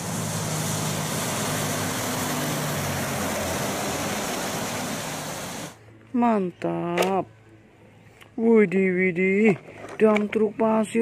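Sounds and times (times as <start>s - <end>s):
truck diesel engine drone: 0.0s - 5.8s
tyres hissing on wet road: 0.0s - 5.8s.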